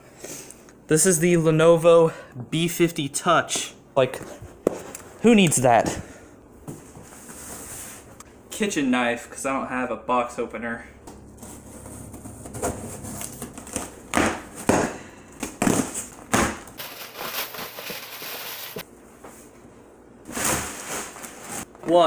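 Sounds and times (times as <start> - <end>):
paper packing rustling: 15.4 - 18.9, 20.3 - 22.0.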